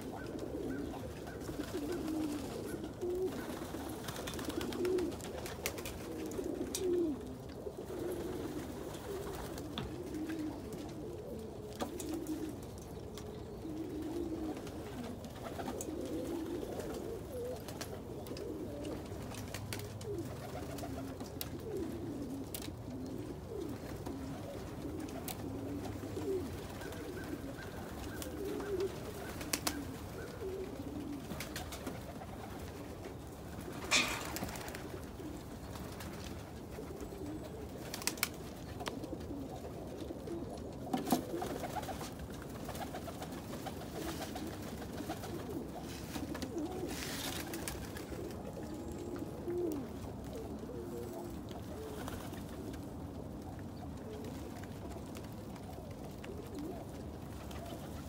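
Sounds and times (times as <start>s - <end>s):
pigeons cooing: 0.0s - 58.0s.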